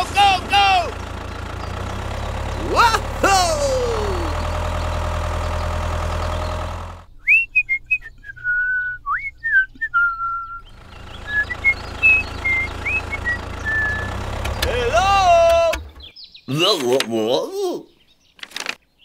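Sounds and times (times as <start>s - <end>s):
engine drone: 0.0s - 7.2s, 10.4s - 16.1s
person whistling a tune: 7.2s - 10.6s.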